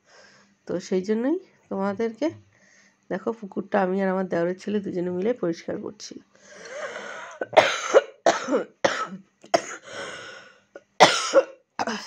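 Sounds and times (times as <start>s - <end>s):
rasping breath: 6.4s - 7.4s, 9.8s - 10.7s
woman coughing: 7.2s - 9.9s, 10.8s - 12.0s.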